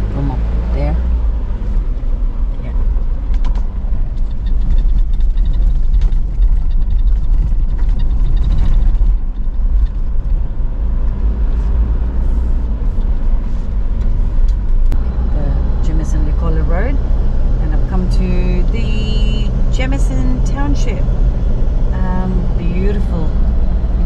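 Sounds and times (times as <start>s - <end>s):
engine and tyre rumble: 0.0s - 24.0s
gravel clicks under tyres: 3.2s - 15.0s.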